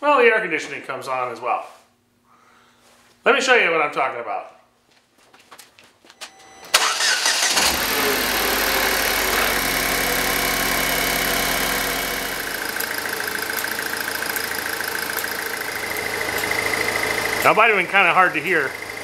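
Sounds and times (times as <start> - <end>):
car engine cranking and idling: 6.6 - 19.0.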